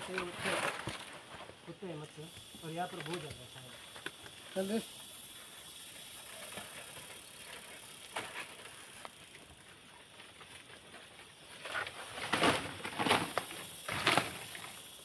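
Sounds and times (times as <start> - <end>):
dry palm fronds rustling: 0.0 - 2.1, 6.2 - 15.0.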